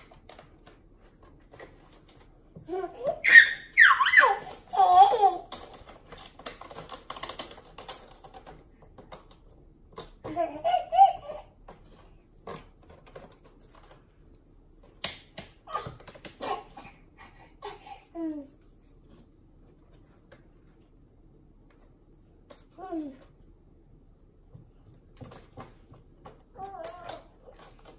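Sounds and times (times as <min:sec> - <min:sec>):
baby laughing: 0:02.7 - 0:05.7, 0:10.2 - 0:11.6, 0:15.6 - 0:18.4.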